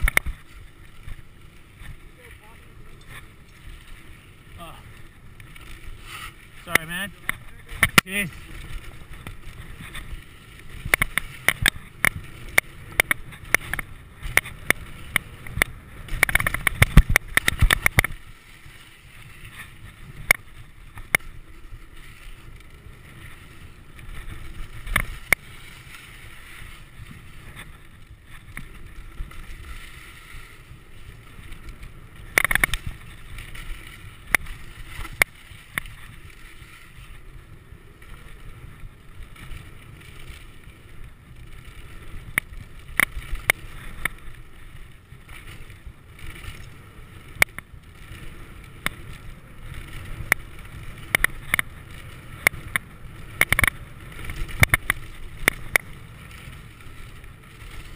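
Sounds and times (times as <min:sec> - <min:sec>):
bike rattling over rough ground: 0:00.0 - 0:57.9
bike tyres rolling on dirt: 0:00.0 - 0:57.9.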